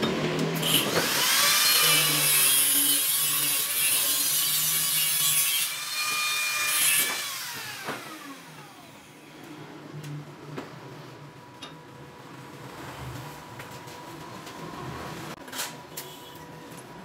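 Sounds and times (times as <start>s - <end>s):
angle grinder grinding steel: 0.1s - 9.2s.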